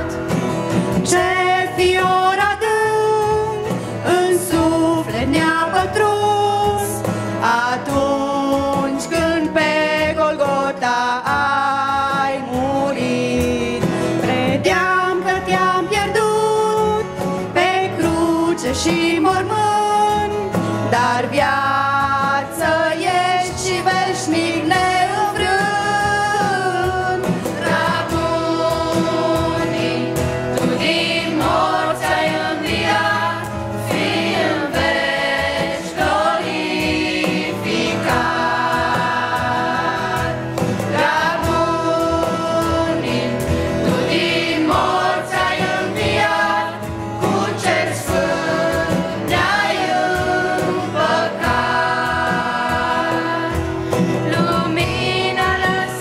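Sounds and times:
children's choir singing: 0:21.2 - 0:56.0.

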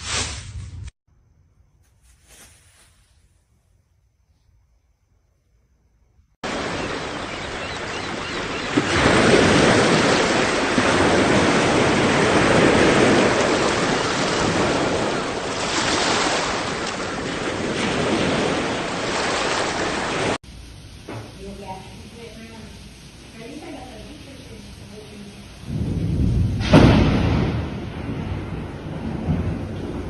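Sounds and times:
waves washing up a beach: 0:06.4 - 0:20.4.

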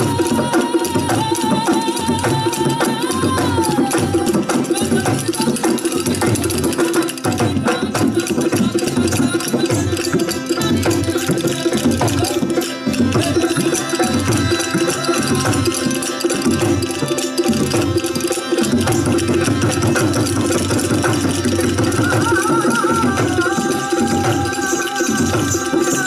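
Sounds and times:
barrel hand drum beating: 0:00.0 - 0:26.0
clicking percussion: 0:00.0 - 0:26.0
sustained melodic notes: 0:09.3 - 0:22.4.

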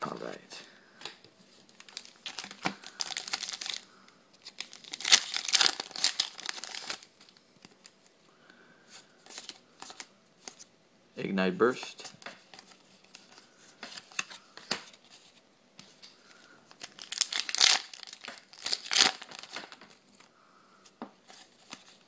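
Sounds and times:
foil pack tearing and crinkling: 0:01.9 - 0:03.8, 0:04.5 - 0:07.1, 0:16.8 - 0:19.9.

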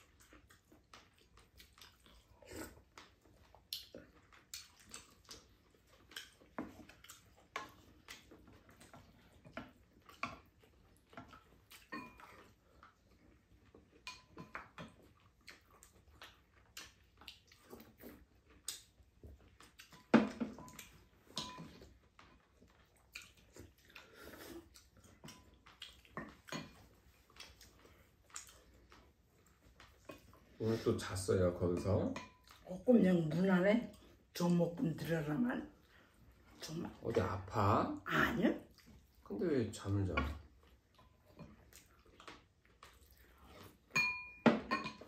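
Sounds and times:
people chewing: 0:00.0 - 0:44.3
utensils clinking on bowls: 0:11.9 - 0:12.4, 0:20.6 - 0:21.8, 0:43.9 - 0:45.0.

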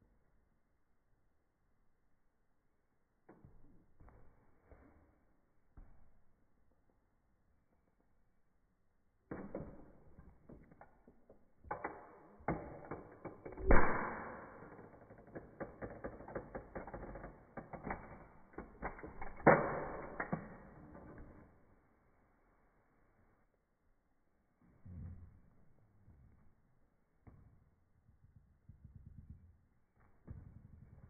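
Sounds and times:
plastic toy car creaking and cracking: 0:09.4 - 0:21.5.

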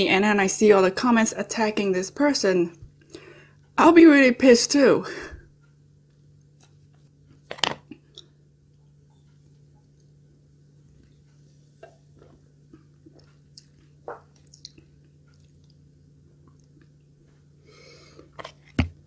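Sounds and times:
faint steady hum: 0:00.0 - 0:19.0
chewing mouth clicks and smacks: 0:11.8 - 0:15.8, 0:16.4 - 0:17.0.

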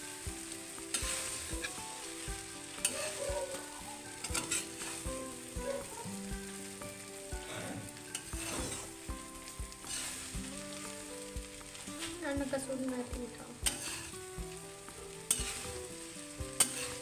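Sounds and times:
rice sizzling in a pan: 0:00.0 - 0:17.0
metal spatula scraping a pan: 0:00.9 - 0:01.8, 0:02.6 - 0:05.9, 0:07.4 - 0:09.1, 0:09.9 - 0:10.8, 0:13.6 - 0:14.2, 0:15.3 - 0:17.0.

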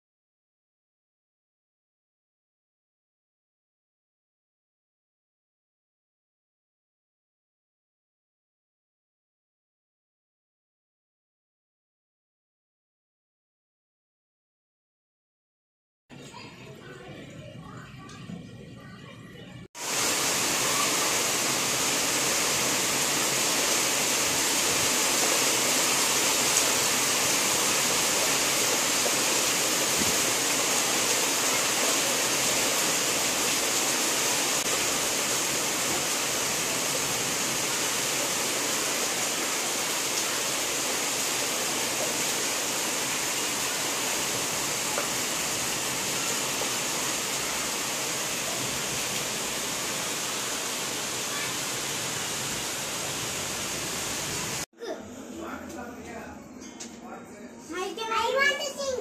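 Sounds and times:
heavy rain on trees and ground: 0:19.8 - 0:54.7.

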